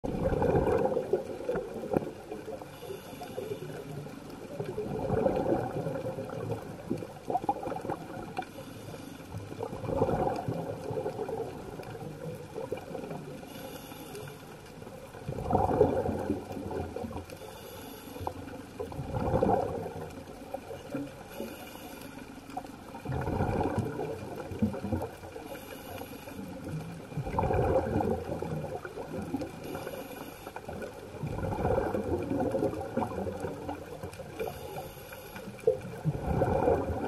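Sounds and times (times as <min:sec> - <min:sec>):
gurgling exhaled bubbles: 0:00.0 - 0:02.7, 0:03.7 - 0:08.5, 0:09.4 - 0:13.4, 0:14.9 - 0:17.3, 0:18.6 - 0:21.3, 0:22.6 - 0:25.5, 0:26.5 - 0:30.0, 0:30.6 - 0:34.9, 0:35.5 - 0:37.0
hiss of inhaled air: 0:13.5 - 0:14.4, 0:17.4 - 0:18.3, 0:25.5 - 0:26.5, 0:29.7 - 0:30.6.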